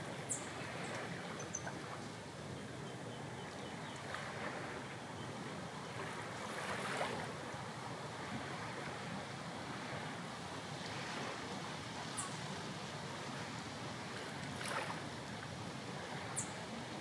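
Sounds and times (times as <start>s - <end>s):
sea waves washing in: 4.0s - 17.0s.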